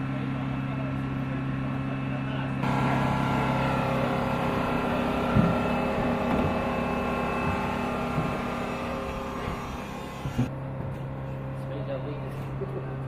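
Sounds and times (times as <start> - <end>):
aircraft machinery whine and hum: 0.1 - 11.6
dull knocks: 5.0 - 10.5.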